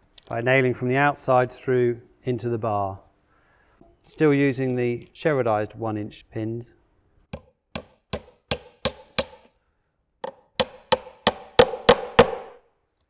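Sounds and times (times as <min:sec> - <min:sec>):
hammer knocking pins into wood: 0:07.3 - 0:09.5, 0:10.2 - 0:12.6.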